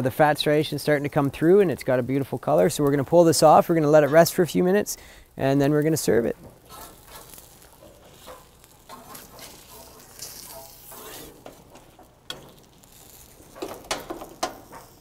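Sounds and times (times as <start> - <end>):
fish sizzling on grill: 0.4 - 15.0
spatula scraping grill: 2.5 - 4.6, 5.8 - 15.0
spatula clinking on grill and plate: 6.7 - 15.0.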